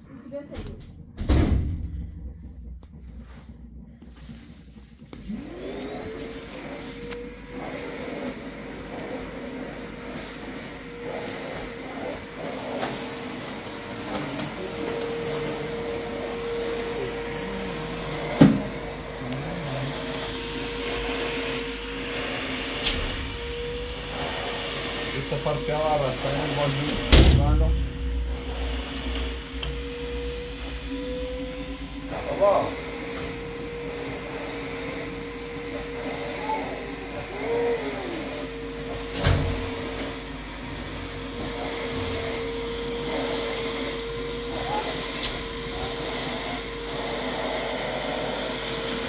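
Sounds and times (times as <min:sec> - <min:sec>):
vacuum cleaner motor whining: 0:00.0 - 0:49.0
thump: 0:00.6 - 0:03.4.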